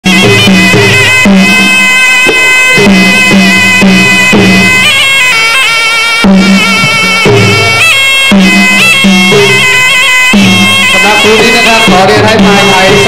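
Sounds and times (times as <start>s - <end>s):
drum strokes: 0.0s - 13.0s
reed pipe melody: 0.0s - 13.0s.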